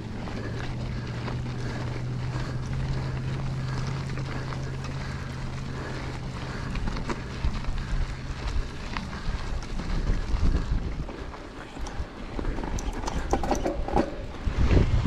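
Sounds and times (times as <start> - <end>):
bike jolts and rattles: 0.0 - 15.0
bike tyres humming on gravel: 0.0 - 15.0
gravel clicks: 0.0 - 15.0
wind noise on microphone: 7.4 - 15.0.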